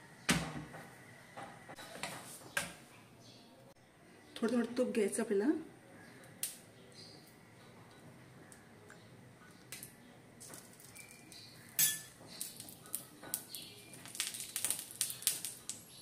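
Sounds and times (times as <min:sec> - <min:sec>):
ghee crackling on hot pan: 0:06.2 - 0:16.0.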